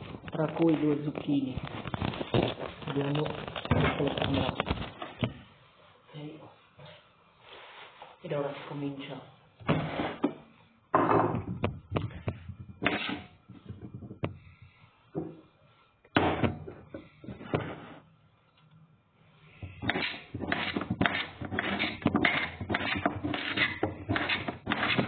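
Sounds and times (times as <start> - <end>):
knife cutting vegetable: 19.8 - 25.0.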